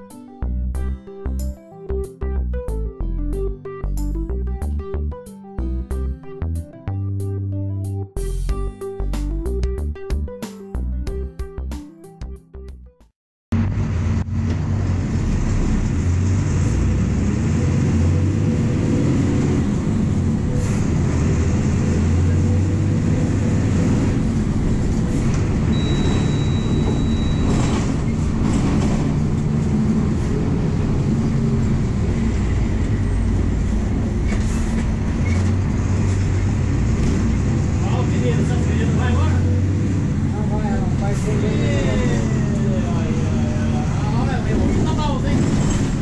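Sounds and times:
bus engine low drone: 0.0s - 11.7s, 13.5s - 46.0s
high steady tone: 25.7s - 27.5s.

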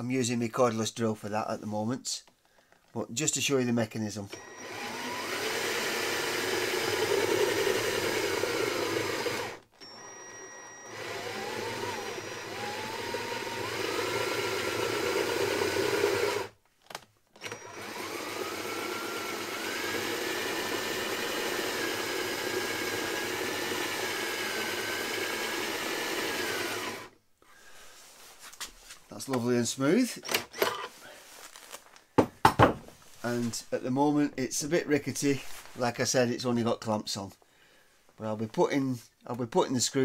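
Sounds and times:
cordless drill whining: 4.3s - 16.6s, 17.3s - 27.2s, 30.2s - 30.9s.

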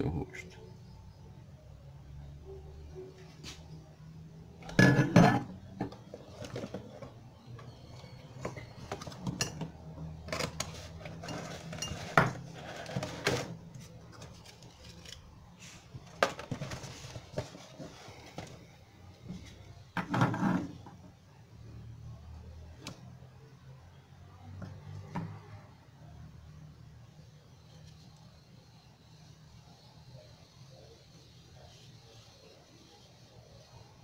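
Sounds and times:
parts clinking on a wooden table: 4.7s - 6.0s.

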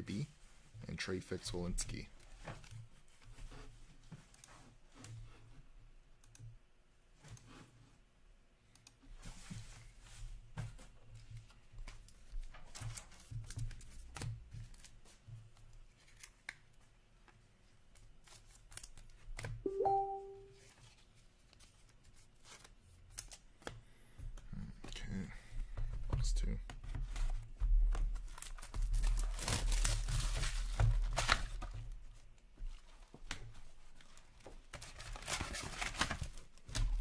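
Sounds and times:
cards rustling and clicking: 11.2s - 19.6s, 21.2s - 23.8s, 32.8s - 37.0s.

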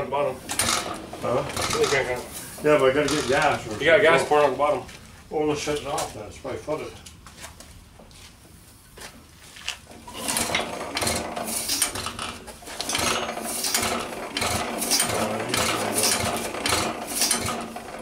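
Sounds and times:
engine gears clicking and clattering: 0.5s - 4.0s, 10.0s - 18.0s.

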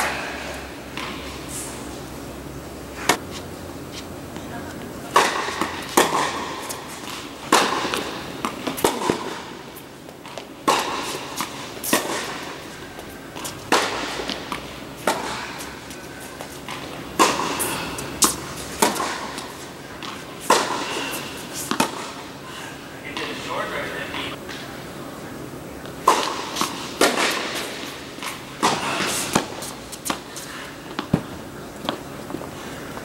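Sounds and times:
racquets striking tennis ball: 2.8s - 22.4s, 23.0s - 24.6s, 25.8s - 33.0s
tennis ball bouncing: 4.3s - 22.4s, 25.8s - 32.4s.

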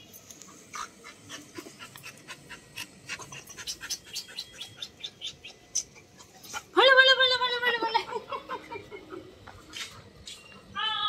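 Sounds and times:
dog panting: 0.4s - 6.8s.

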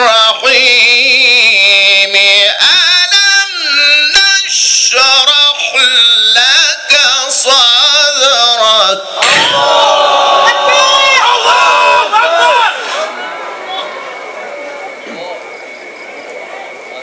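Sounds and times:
melodic recitation over loudspeaker: 0.0s - 9.6s.

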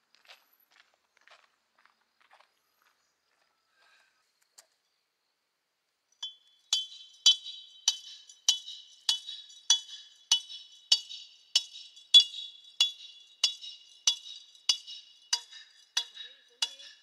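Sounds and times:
hammering on metal: 6.2s - 17.0s.

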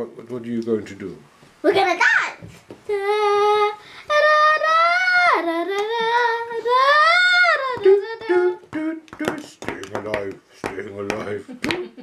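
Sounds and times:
high voice singing sliding notes: 2.9s - 9.9s.

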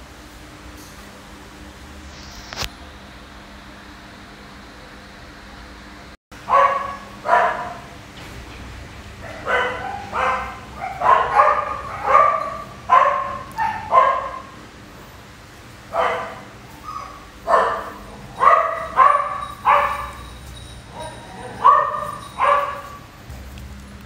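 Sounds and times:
puppy barking: 6.4s - 7.9s, 9.2s - 14.6s, 15.9s - 23.1s.

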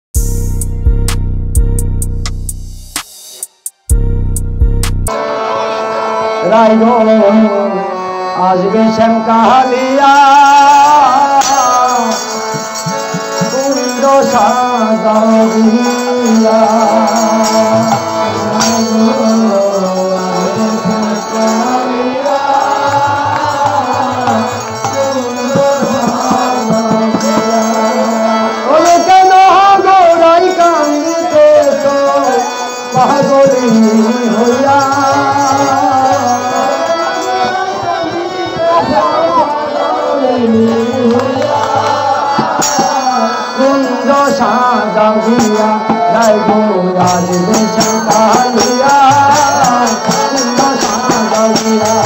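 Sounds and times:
man singing into a microphone: 5.1s - 52.0s
group hand clapping: 41.1s - 42.1s.

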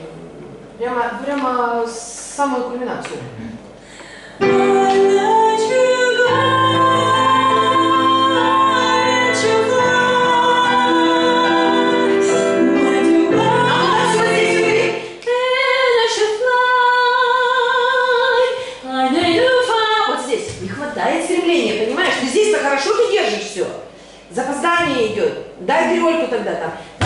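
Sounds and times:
digital piano chords: 4.4s - 15.2s
woman singing a slow ballad: 4.4s - 20.2s.

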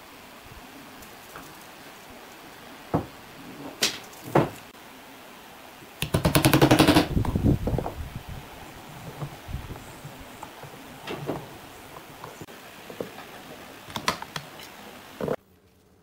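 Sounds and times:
wood knocks: 2.9s - 3.2s, 3.8s - 4.6s.

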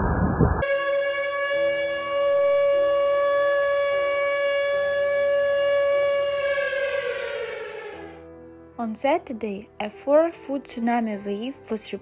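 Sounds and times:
siren steady tone winding down: 0.0s - 8.3s.

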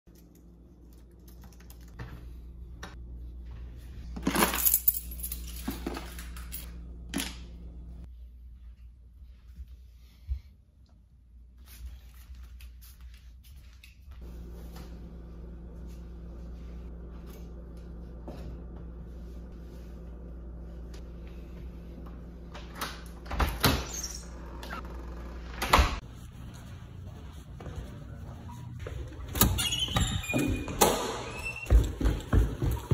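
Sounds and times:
keys jangling: 4.2s - 6.7s
steady low hum: 14.2s - 23.6s.

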